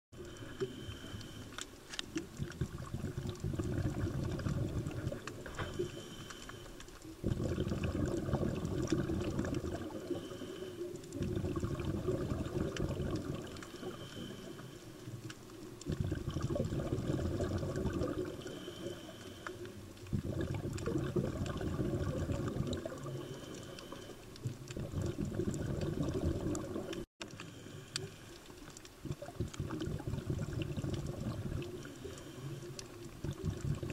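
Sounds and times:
underwater regulator breathing bubbles: 0.2 - 33.9.

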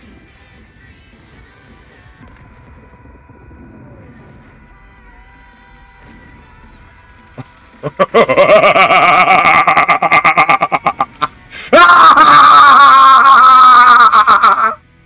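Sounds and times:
loud rapid laughter: 7.8 - 14.8
long loud scream: 11.5 - 14.8.

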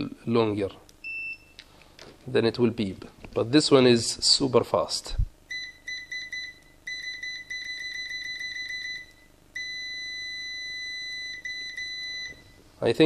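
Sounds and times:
multimeter continuity beeps: 1.0 - 1.6, 5.5 - 12.6.

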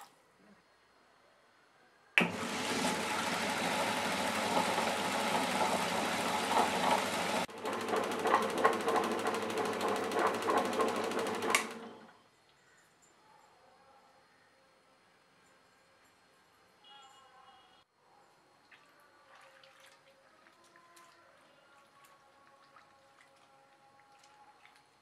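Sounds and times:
stone rollers grinding: 2.2 - 11.8
electric motor humming: 2.2 - 12.0.

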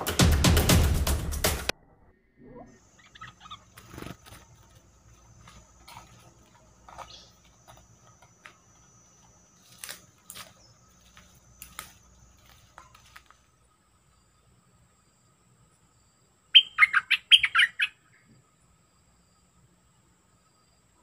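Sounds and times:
bird chips and clicks: 2.9 - 13.5.

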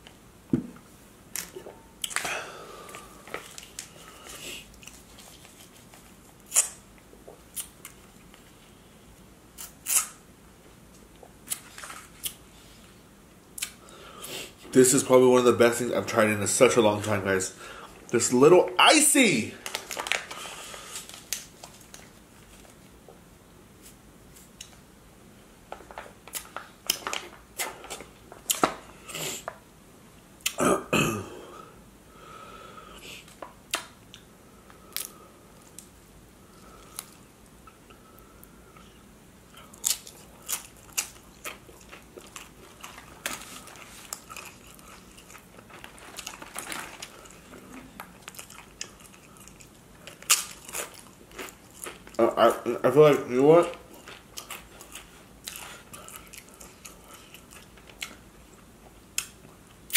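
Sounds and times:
plastic pouch crinkling: 19.6 - 22.8, 42.2 - 48.9
crunching and chewing chips: 39.5 - 52.3, 53.6 - 58.2.

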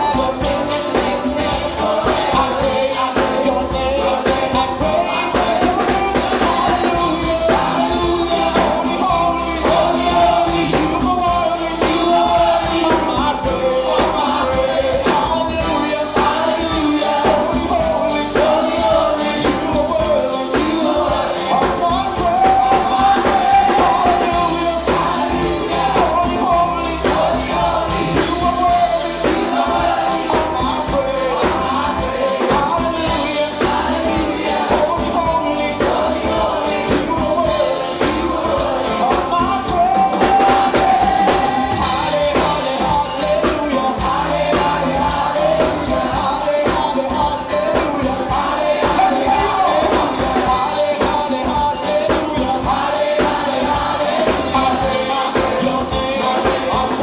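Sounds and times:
conga drums: 0.0 - 57.0
man singing into a microphone: 0.0 - 57.0.

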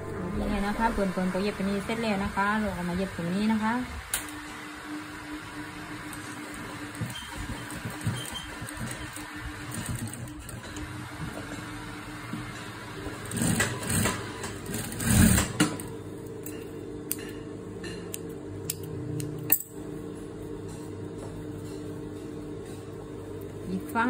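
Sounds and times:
sewing machine stitching: 6.2 - 10.9, 13.2 - 15.9.

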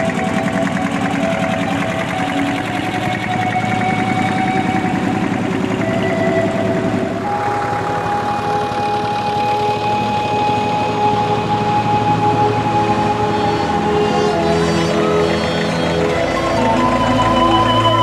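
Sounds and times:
held whining tones: 0.0 - 18.0
tractor engines chugging: 0.0 - 18.0.

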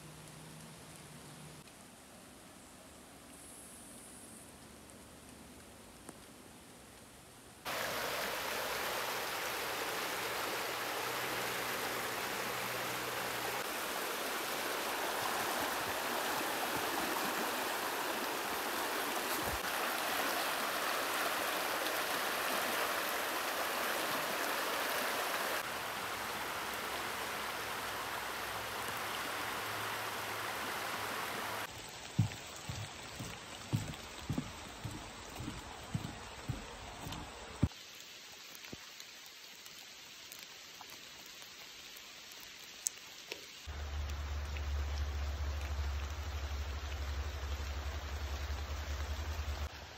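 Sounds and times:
river water rushing over rocks: 7.7 - 37.6.

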